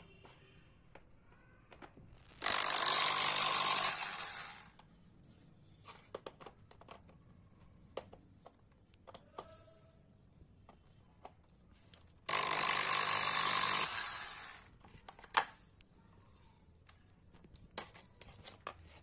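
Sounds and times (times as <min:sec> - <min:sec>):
power drill running: 0:02.2 - 0:04.8, 0:12.3 - 0:14.7.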